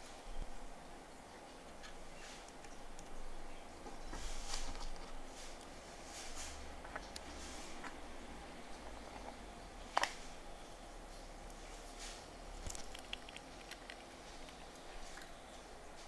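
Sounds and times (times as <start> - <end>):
plastic items clicking and tapping: 12.6 - 15.3.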